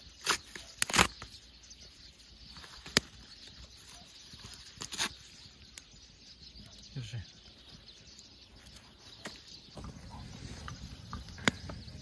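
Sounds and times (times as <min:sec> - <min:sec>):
campfire crackling and popping: 0:09.7 - 0:12.0.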